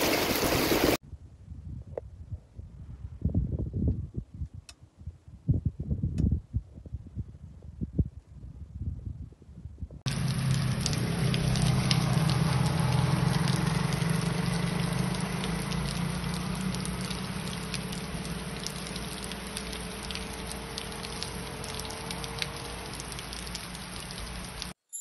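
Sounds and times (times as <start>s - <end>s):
rain pattering: 0.0s - 1.0s, 10.1s - 24.8s
motorcycle engines passing: 10.1s - 24.6s.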